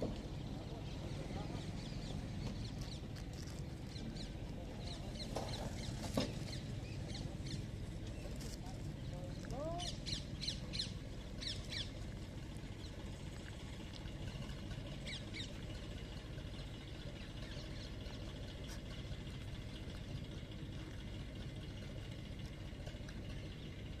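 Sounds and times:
low background rumble: 0.0s - 24.0s.

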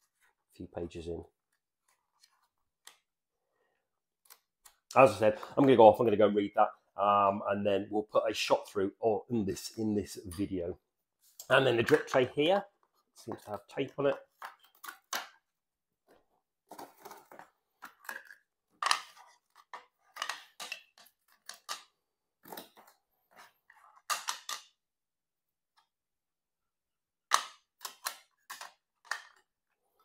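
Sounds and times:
plastic parts clicking: 16.7s - 22.9s, 27.3s - 29.6s.

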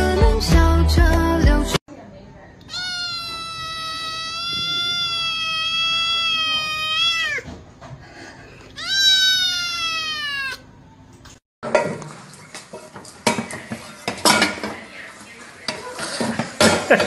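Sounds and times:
kitten meowing: 2.6s - 7.5s, 8.8s - 10.6s
metal pots and kettle clattering: 11.6s - 14.8s, 15.7s - 17.0s.

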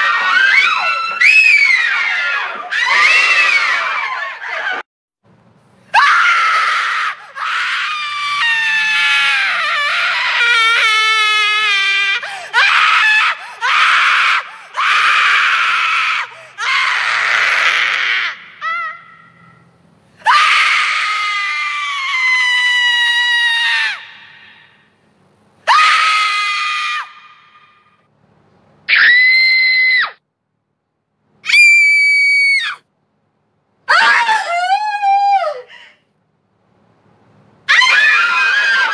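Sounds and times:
women screaming: 0.0s - 4.8s, 6.0s - 19.1s, 20.2s - 24.6s, 25.7s - 27.5s, 28.9s - 30.2s, 31.4s - 32.8s, 37.7s - 38.9s.

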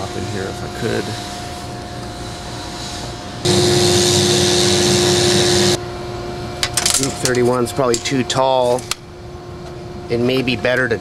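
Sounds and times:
mechanical whirring drone: 0.0s - 6.2s.

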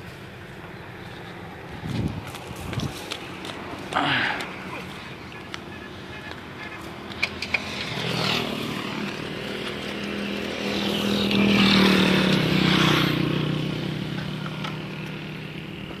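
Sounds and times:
motorcycle engine running: 7.1s - 16.0s.

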